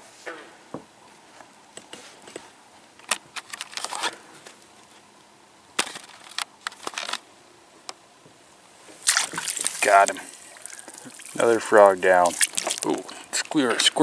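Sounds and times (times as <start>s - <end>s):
soft rustling of water weeds: 8.7s - 14.0s.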